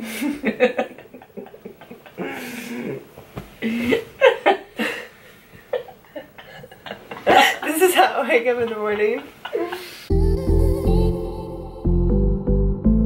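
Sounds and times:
woman laughing: 0.1 - 3.0, 3.6 - 5.1, 5.7 - 10.0
breathy wordless voice sounds: 2.2 - 4.0.

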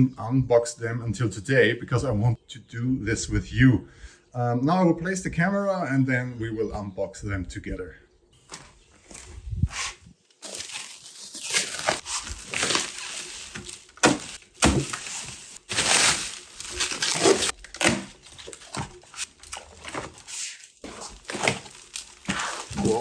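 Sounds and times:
packaging rustling and crinkling: 10.2 - 23.0.

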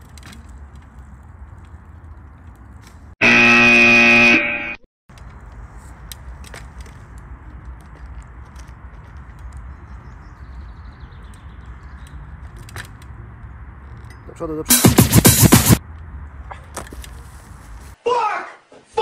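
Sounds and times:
harsh wrong answer buzzer: 3.2 - 4.8
faint outdoor ambience: 5.1 - 14.8.

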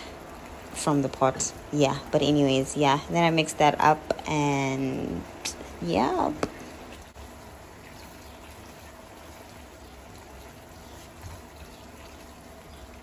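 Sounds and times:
pasta sauce bubbling in a pan: 0.0 - 4.3, 5.2 - 13.0.

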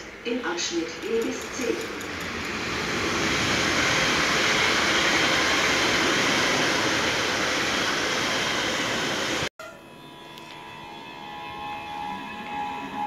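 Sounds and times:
train wheels rolling on rail: 0.0 - 9.5.

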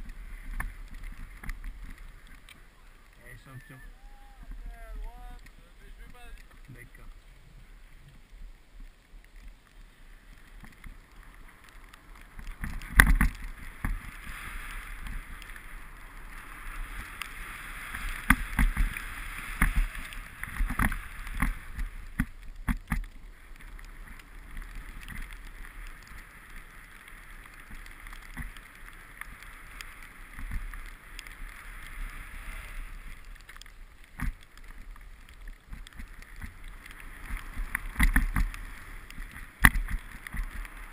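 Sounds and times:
snowboard scraping on snow: 12.6 - 33.3, 36.0 - 40.9.

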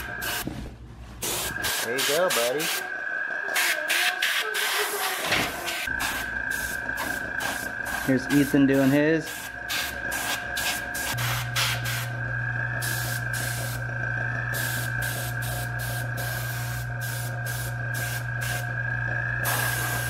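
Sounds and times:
air compressor humming: 0.0 - 20.0
airbrush hissing: 3.6 - 12.2, 12.8 - 13.8, 14.5 - 18.7, 19.4 - 20.0.

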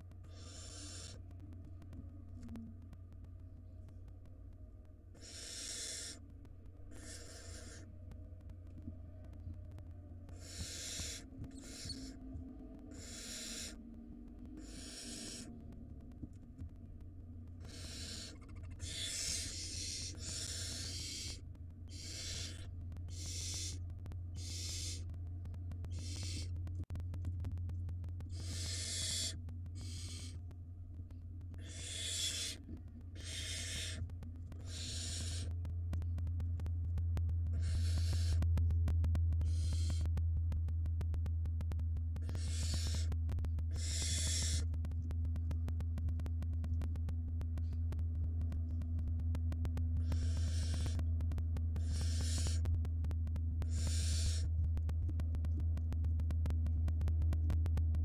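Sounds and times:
steady low hum: 0.0 - 58.0
owl chick hissing: 0.3 - 1.2, 5.1 - 6.2, 6.9 - 7.9, 10.3 - 12.2, 12.9 - 13.8, 14.6 - 15.5, 17.6 - 23.8, 24.4 - 25.0, 25.9 - 26.5, 28.3 - 30.4, 31.6 - 32.6, 33.2 - 34.0, 34.6 - 35.5, 37.6 - 38.4, 39.4 - 40.1, 42.2 - 43.1, 43.7 - 44.7, 50.0 - 51.0, 51.8 - 52.7, 53.6 - 54.5.

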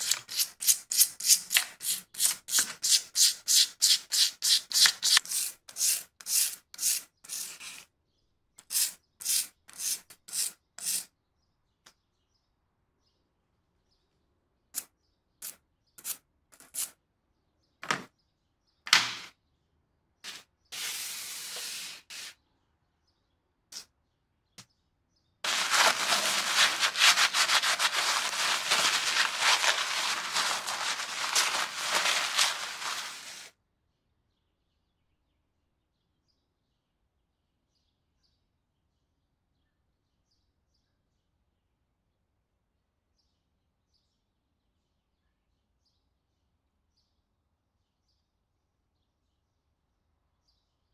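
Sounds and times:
rubbing in paper towel: 0.0 - 0.8, 25.5 - 33.5
brush scrubbing metal in water: 0.0 - 7.8, 25.5 - 33.5.

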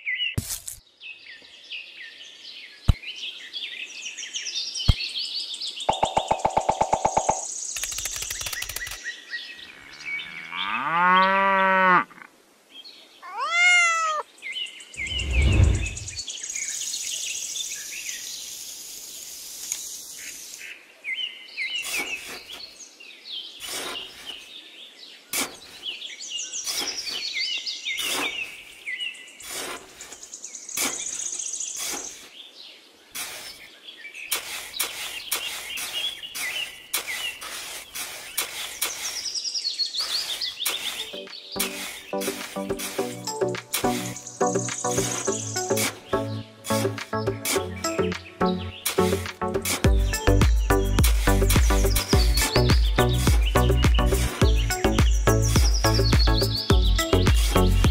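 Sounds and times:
birds chirping: 0.0 - 11.7, 12.8 - 18.6, 19.7 - 57.9
tool scraping sand: 21.8 - 22.8, 23.6 - 24.5, 25.3 - 26.0, 26.6 - 27.4, 28.0 - 28.7, 29.4 - 32.3, 33.1 - 33.7, 34.3 - 44.2, 45.0 - 46.1, 48.8 - 50.2.

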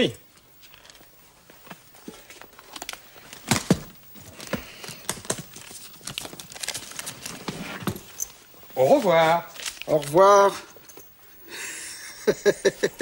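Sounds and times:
rustling: 0.3 - 11.4.

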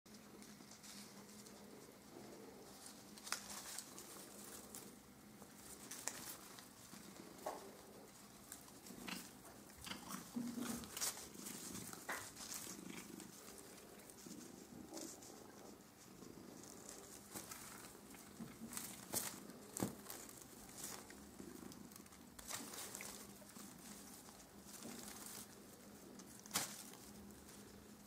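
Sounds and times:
cat low rumbling: 0.1 - 28.0
paper streamers rustling: 2.2 - 8.8, 10.3 - 28.0.

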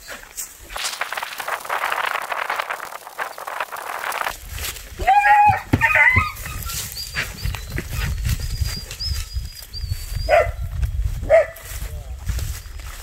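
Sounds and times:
dog barking: 10.3 - 10.6, 11.3 - 11.6.

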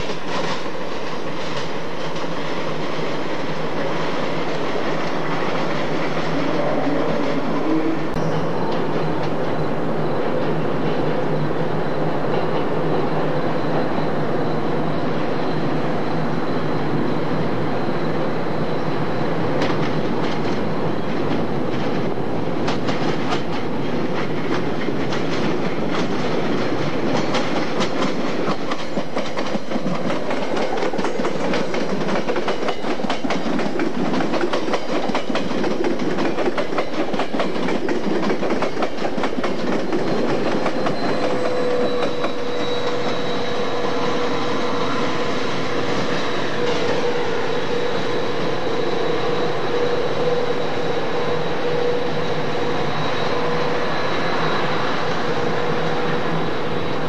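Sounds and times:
clickety-clack over rail joints: 0.0 - 9.5, 19.5 - 43.3
train wheels on rails with hum: 0.0 - 57.0.

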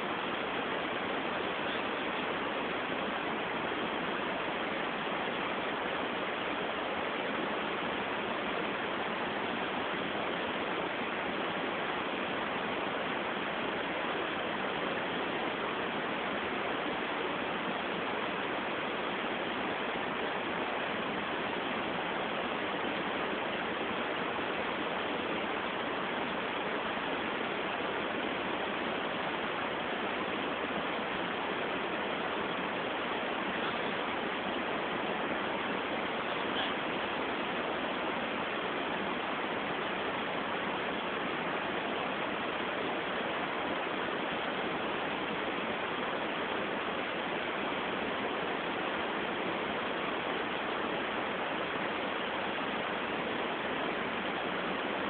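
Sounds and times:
steady hiss: 0.0 - 55.0.

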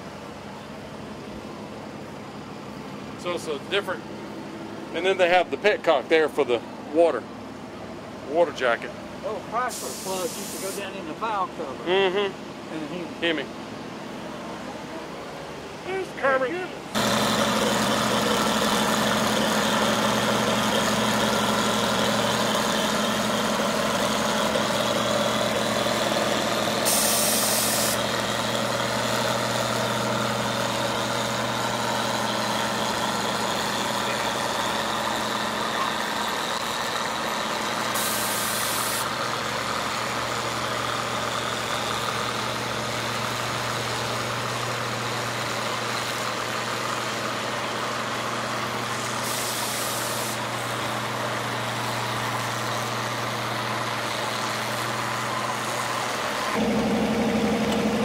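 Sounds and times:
short hisses: 9.7 - 10.9, 26.9 - 28.0, 38.0 - 39.1, 49.2 - 50.4
tractor engine under load: 17.0 - 58.0.

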